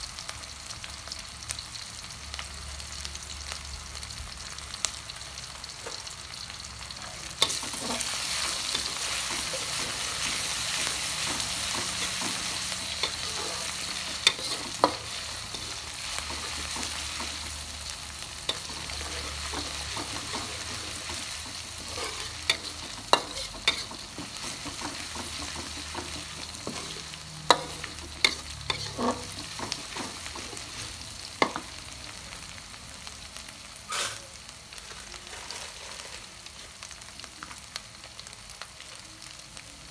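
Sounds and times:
paste sizzling in oil: 0.9 - 33.0, 33.6 - 38.1
spatula scraping wok: 7.2 - 31.8, 34.8 - 36.8.

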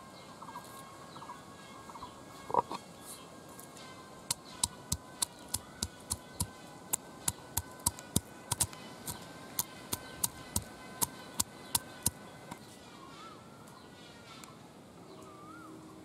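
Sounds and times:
stone pestle pounding garlic: 4.3 - 12.2.

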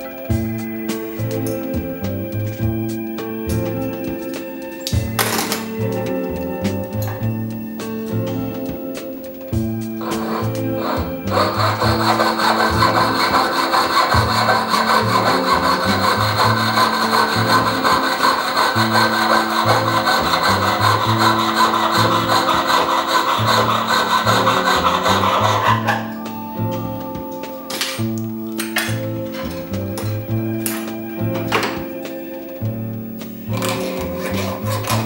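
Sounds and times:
saw cutting through metal: 10.0 - 26.2, 33.6 - 35.0.

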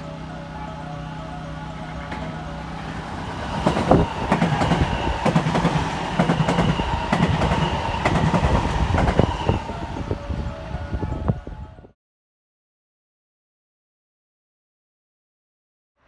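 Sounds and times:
electric train passing: 0.0 - 12.0
wheels clicking over rail joints: 0.2 - 10.6.

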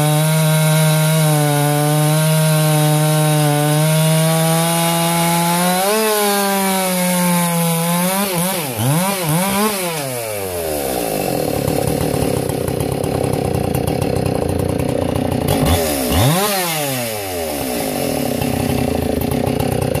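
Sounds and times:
chainsaw revving and idling: 0.0 - 20.0.

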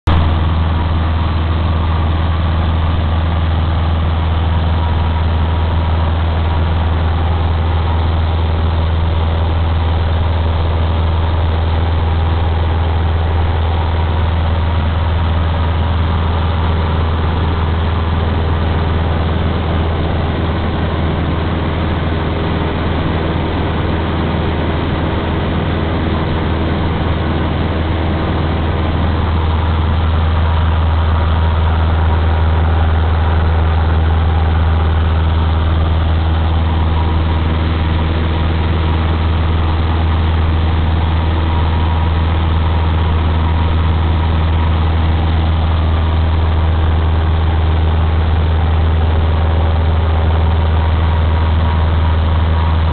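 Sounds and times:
plane engine and propeller droning: 0.1 - 52.9.

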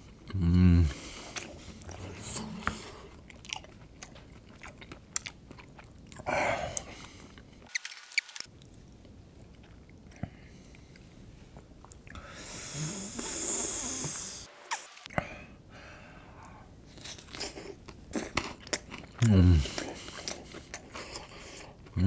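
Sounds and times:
breathy hiss: 12.2 - 16.7.

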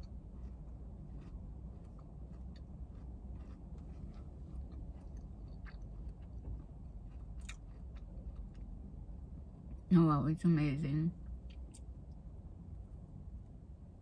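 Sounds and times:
person chewing crunchy food: 0.0 - 9.0
steady low rumble: 0.0 - 14.0.

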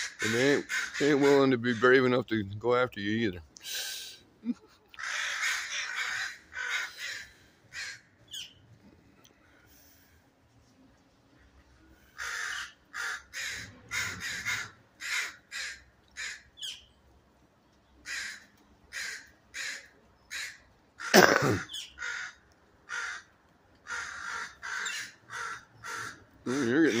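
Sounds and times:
crows cawing: 0.0 - 2.0, 4.9 - 8.5, 12.1 - 16.8, 18.0 - 27.0.

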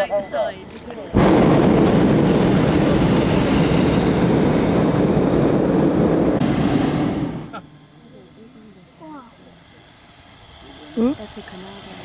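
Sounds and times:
propane burner blast: 1.1 - 7.9.

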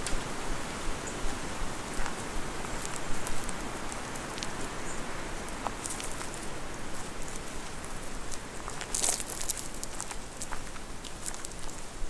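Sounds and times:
footsteps crunching on gravel: 8.3 - 11.8.

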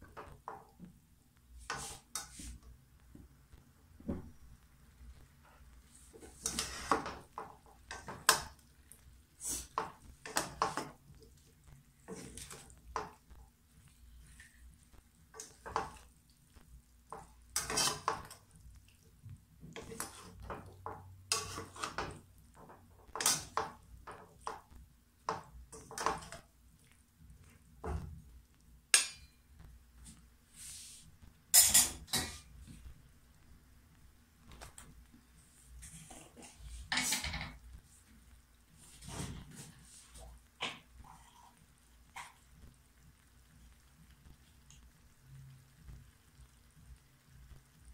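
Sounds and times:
metal spatula scraping a wok: 6.2 - 7.2, 17.6 - 18.3, 21.3 - 22.0.

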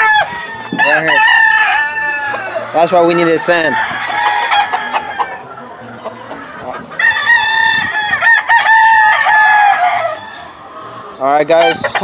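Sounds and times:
rooster crowing: 0.0 - 5.4, 7.0 - 10.6.

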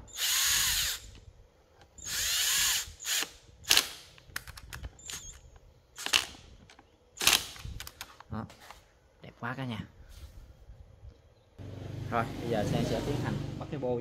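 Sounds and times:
power driver spinning nuts: 0.0 - 1.2, 1.9 - 3.8.

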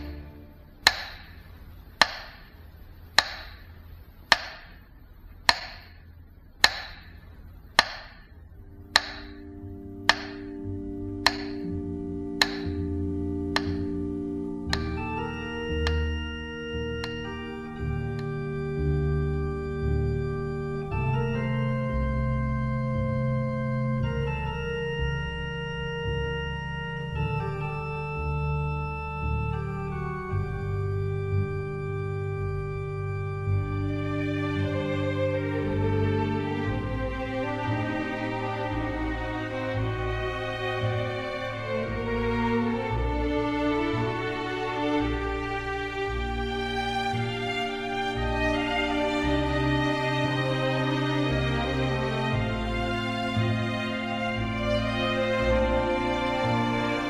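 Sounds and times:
slow sustained keyboard chords: 0.0 - 57.0
ticking percussive hits: 0.8 - 1.4, 2.0 - 2.5, 3.2 - 3.7, 4.3 - 4.8, 5.5 - 6.0, 6.6 - 8.3, 8.9 - 10.6, 11.2 - 11.7, 12.4 - 12.9, 13.5 - 14.0, 14.7 - 15.0
faint low drone: 4.8 - 57.0.

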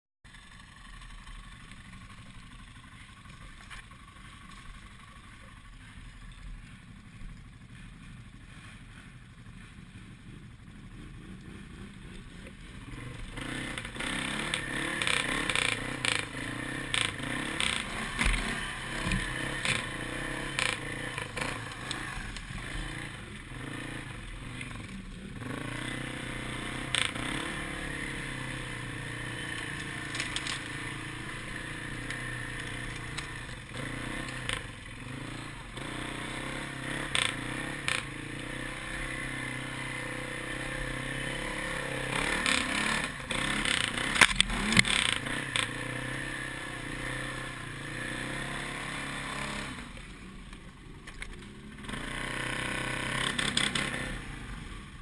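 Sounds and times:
atv engine revving: 0.3 - 55.0
branches cracking and scraping: 20.6 - 23.0, 29.5 - 31.0.

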